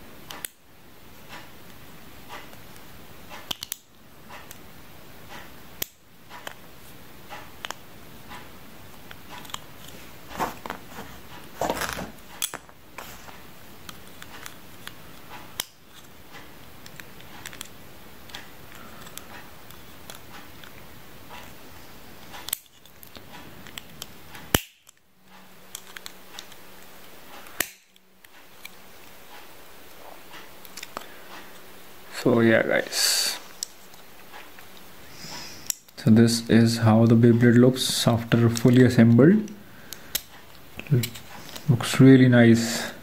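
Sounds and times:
plastic parts clicking and rattling: 0:09.0 - 0:21.6, 0:25.7 - 0:26.6.

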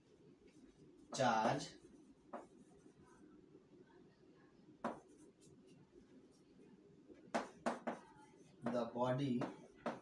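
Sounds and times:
chalk scratching on chalkboard: 0:00.5 - 0:03.2, 0:04.8 - 0:06.5, 0:07.3 - 0:10.0.

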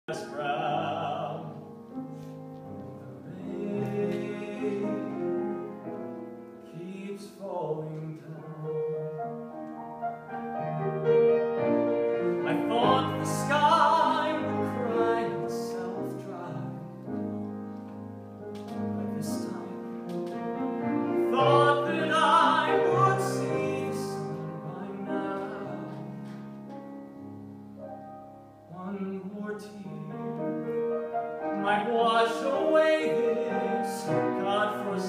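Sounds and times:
piano accompaniment: 0:00.0 - 0:35.0
young man singing a ballad: 0:00.1 - 0:01.8, 0:03.2 - 0:05.6, 0:06.6 - 0:09.0, 0:12.4 - 0:17.0, 0:18.7 - 0:20.2, 0:21.2 - 0:26.5, 0:28.7 - 0:30.7, 0:31.5 - 0:35.0.

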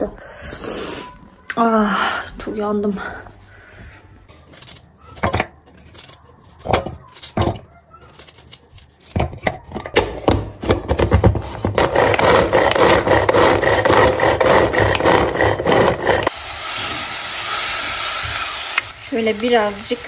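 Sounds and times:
knife cutting onion: 0:05.8 - 0:09.8, 0:11.4 - 0:16.3
hand chopper dicing onion: 0:10.9 - 0:16.3
onion sizzling in pot: 0:16.0 - 0:20.0.

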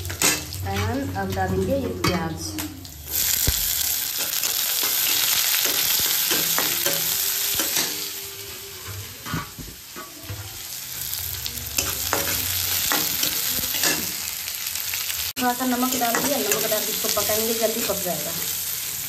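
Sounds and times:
onion sizzling in hot oil: 0:00.0 - 0:19.0.

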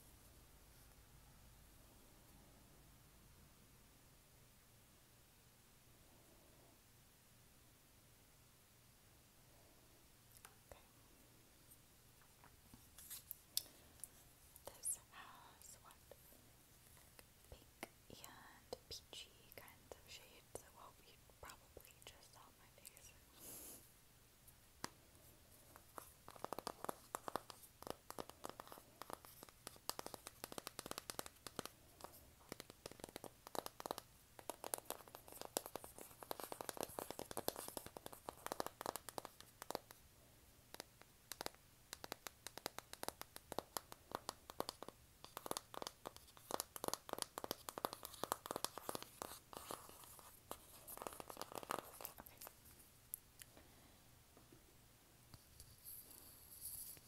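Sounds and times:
fingernails tapping on cardboard: 0:26.3 - 0:31.7, 0:40.7 - 0:49.8.

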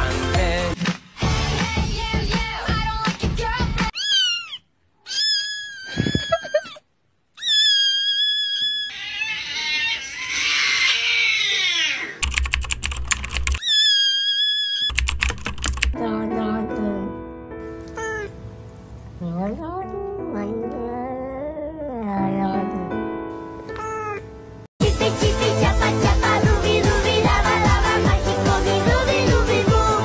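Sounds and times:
music: 0:00.0 - 0:03.9, 0:16.0 - 0:30.0
rapid keyboard-like clicking: 0:12.2 - 0:13.6, 0:14.9 - 0:16.0.

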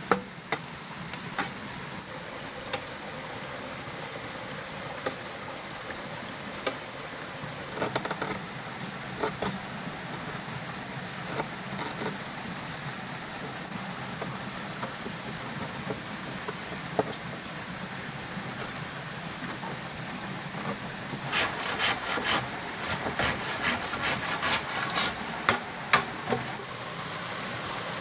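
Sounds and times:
knife cutting bamboo: 0:21.3 - 0:25.6.

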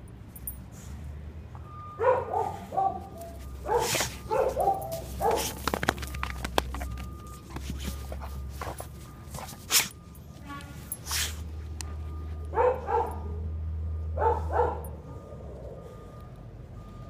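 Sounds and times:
dog chewing plush toy: 0:05.1 - 0:09.6.

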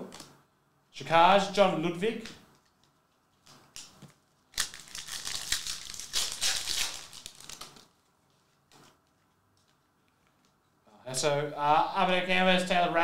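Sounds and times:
trading cards rustling: 0:02.6 - 0:10.6.

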